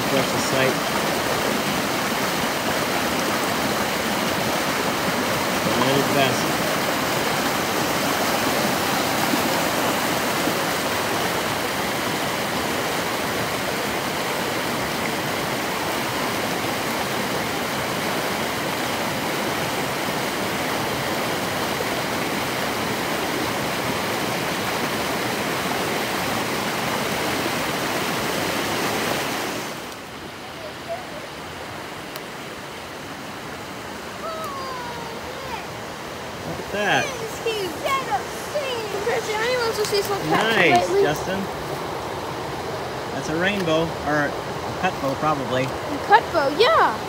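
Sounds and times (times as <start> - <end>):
water rushing over rocks: 0.0 - 47.0.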